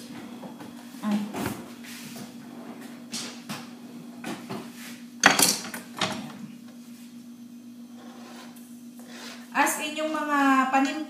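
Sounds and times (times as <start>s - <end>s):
steady low hum: 0.0s - 11.0s
utensils and pans clinking: 5.2s - 6.2s.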